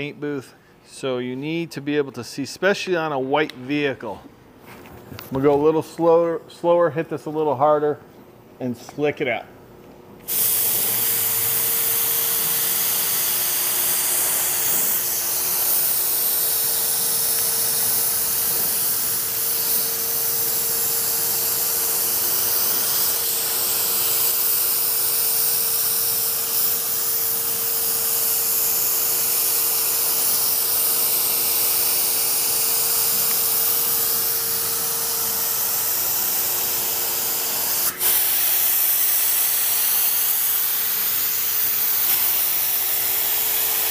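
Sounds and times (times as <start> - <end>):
paint spray gun hissing: 10.2 - 43.9.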